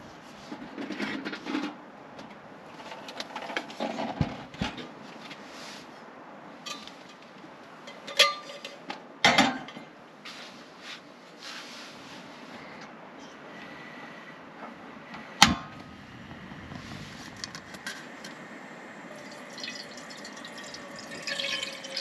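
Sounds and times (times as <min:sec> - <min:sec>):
steady background hiss: 0:01.7 - 0:22.0
cookware clinks and knocks: 0:07.9 - 0:09.8.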